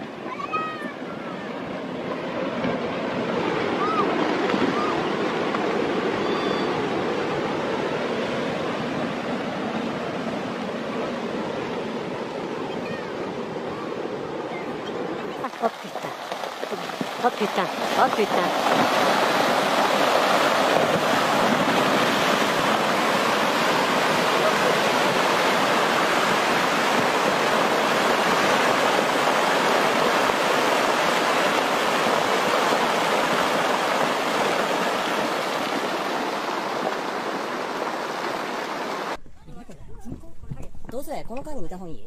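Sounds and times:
rockfall and avalanche roar: 0:15.5 - 0:38.6.

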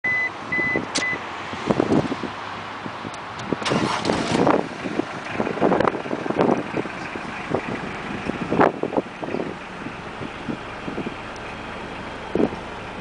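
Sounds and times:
dashboard warning beep: 0:00.0 - 0:01.2
diesel engine cranking and starting: 0:03.3 - 0:13.0.

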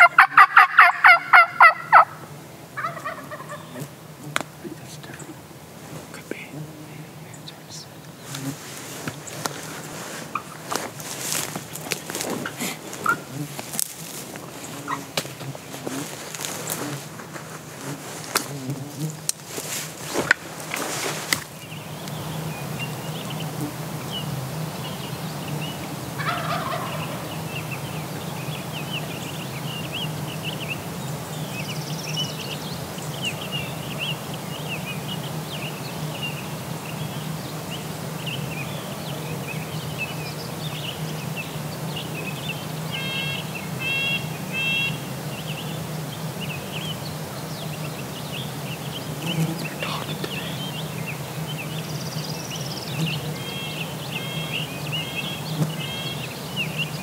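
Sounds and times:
wild turkeys gobbling: 0:00.0 - 0:04.5, 0:09.3 - 0:13.8, 0:26.2 - 0:27.3, 0:43.0 - 0:45.0.

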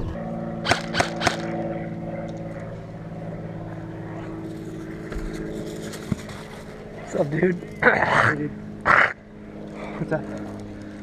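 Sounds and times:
motor-like drone: 0:00.0 - 0:11.0
airsoft rifle shots: 0:00.6 - 0:01.6.

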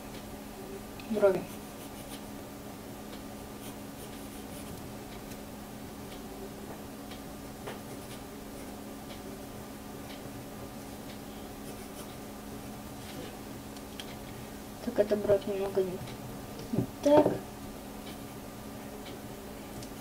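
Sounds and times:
faint electrical hum: 0:00.0 - 0:20.0
pencil scratching on paper: 0:01.3 - 0:02.3, 0:03.6 - 0:04.8, 0:11.6 - 0:12.2.

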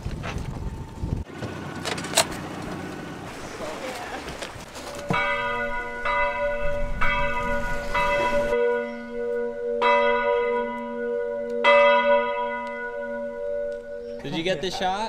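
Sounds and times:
church bell tolling: 0:04.9 - 0:14.4.

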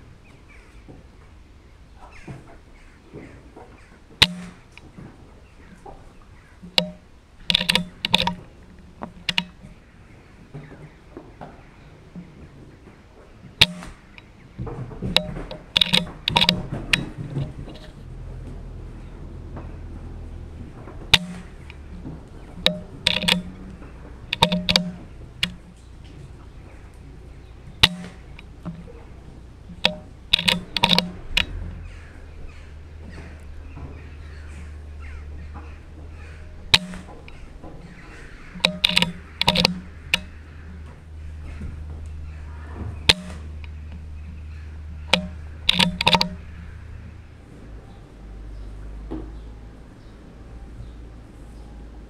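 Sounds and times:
metallic clicks of rifle bolt: 0:06.7 - 0:09.6, 0:22.6 - 0:23.7, 0:29.8 - 0:31.6, 0:38.6 - 0:40.4, 0:45.1 - 0:46.4
short sharp clicks: 0:13.6 - 0:14.3, 0:21.1 - 0:21.8, 0:22.6 - 0:25.6, 0:27.8 - 0:29.0, 0:29.7 - 0:31.6, 0:38.6 - 0:40.4, 0:43.1 - 0:43.8, 0:45.1 - 0:46.5.

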